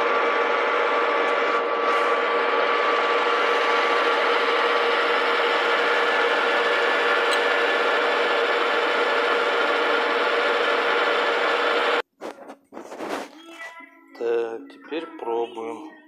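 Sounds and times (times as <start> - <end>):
metal lathe humming and whining: 0.0 - 12.0.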